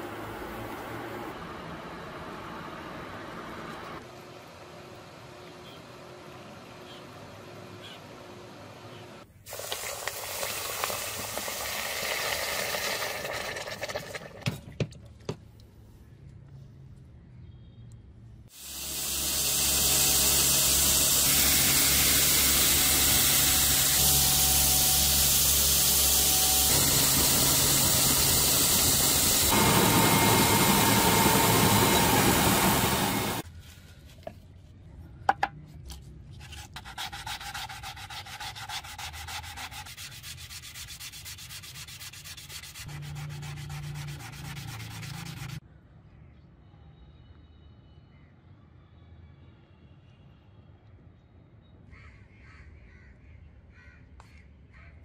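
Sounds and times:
belt grinder grinding brass: 18.6 - 33.4
hand wet sanding: 36.4 - 45.6.

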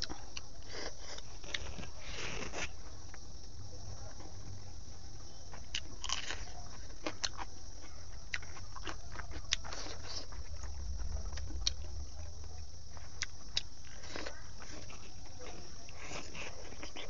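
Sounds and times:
crunching raw onion: 5.5 - 17.0
wet chewing: 5.5 - 17.0.

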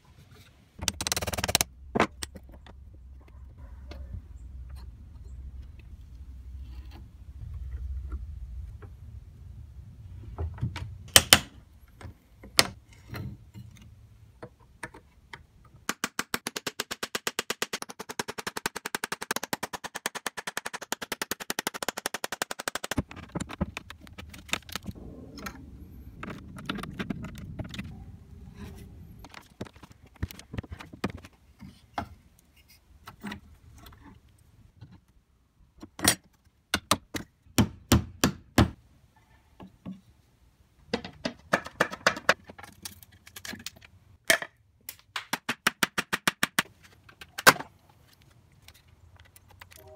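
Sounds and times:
metal clicks and knocks on nails: 0.8 - 2.8.

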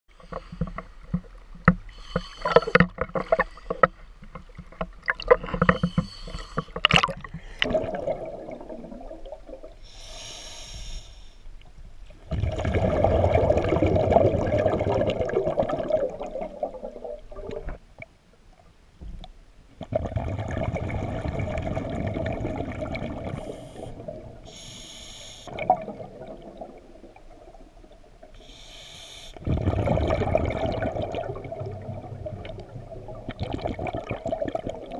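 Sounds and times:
water splashing and sloshing: 0.1 - 9.9, 11.6 - 24.6
regulator hissing inhale: 1.9 - 4.0, 5.6 - 6.8, 9.8 - 11.5, 23.4 - 25.6, 28.4 - 29.4
exhaled bubbles underwater: 6.8 - 9.8, 12.2 - 18.1, 19.8 - 24.5, 25.5 - 28.4, 29.4 - 34.9.

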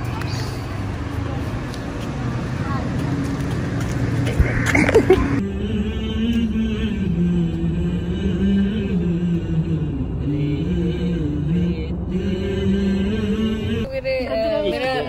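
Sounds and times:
low steady rumble: 4.4 - 15.0.

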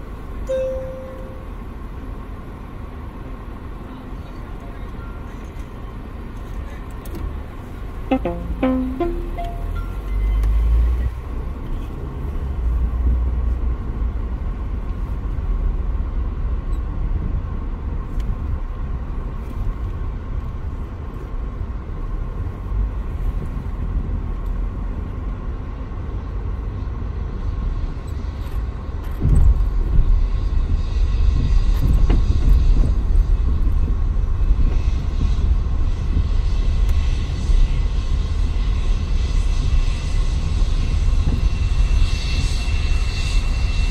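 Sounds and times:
faint steady whine: 0.2 - 2.2.

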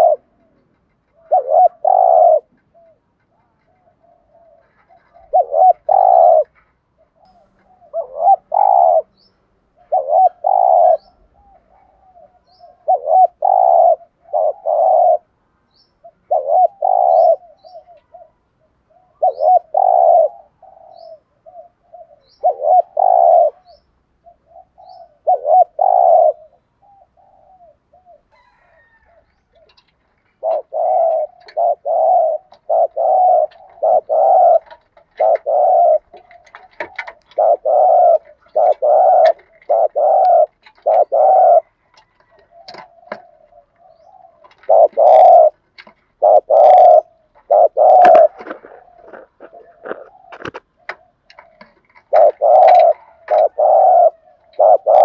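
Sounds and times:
dove cooing: 0.0 - 55.0
small bird chirping: 7.1 - 29.8.

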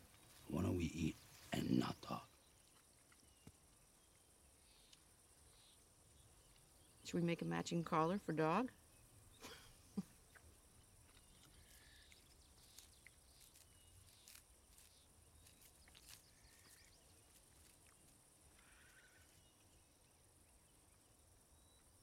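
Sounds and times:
small ticks: 2.6 - 5.8, 6.4 - 6.8, 10.2 - 19.8.

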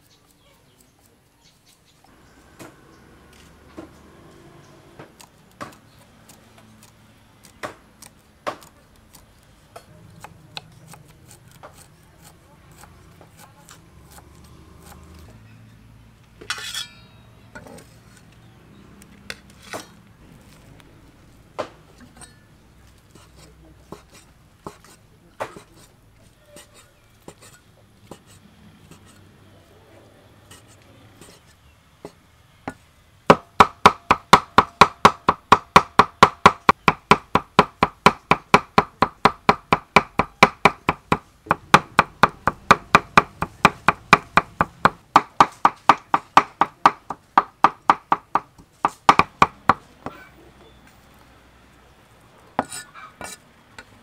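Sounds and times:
knife cutting on wooden board: 23.1 - 25.9, 52.6 - 53.4.

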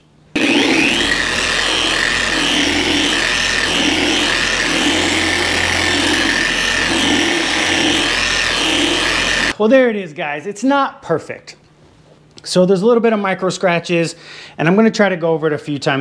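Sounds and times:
electric car polisher humming: 0.4 - 9.6.

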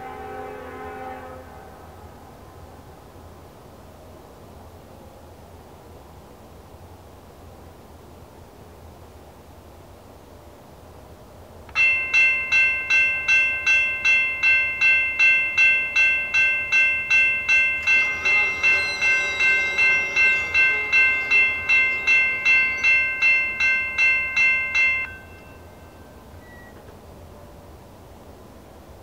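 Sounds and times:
railroad crossing bell ringing: 11.7 - 26.8.

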